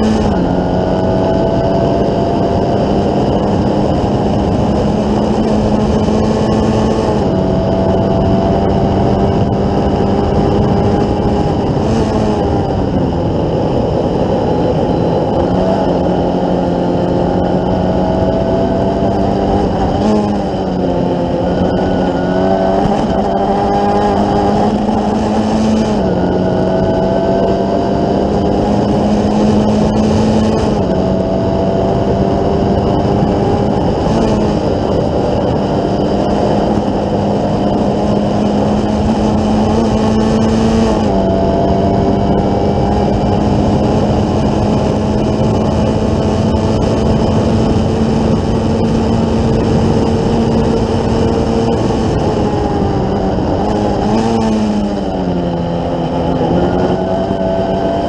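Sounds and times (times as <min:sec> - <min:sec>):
race car engine revving: 0:00.0 - 0:58.0
wind rush: 0:00.0 - 0:58.0.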